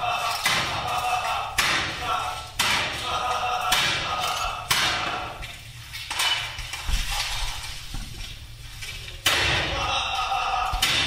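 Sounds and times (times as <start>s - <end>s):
knocks echoing in stone tunnel: 0.0s - 5.7s, 9.2s - 11.0s.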